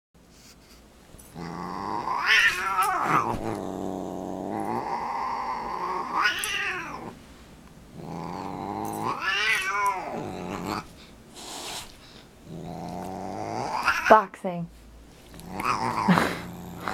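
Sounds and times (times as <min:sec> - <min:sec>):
cat growling and yowling: 0:01.3 - 0:07.2, 0:08.0 - 0:10.9, 0:12.5 - 0:14.1, 0:15.4 - 0:16.9.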